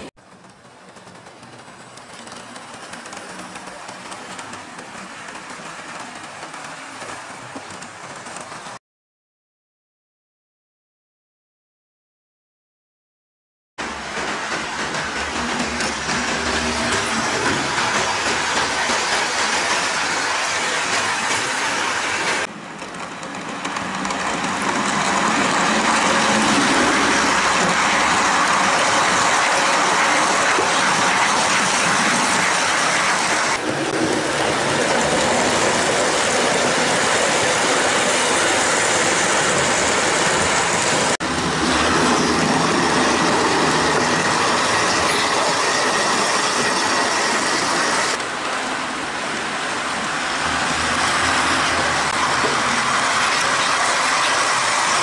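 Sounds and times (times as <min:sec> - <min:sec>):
model train wheels rattling: 0:00.3 - 0:08.7.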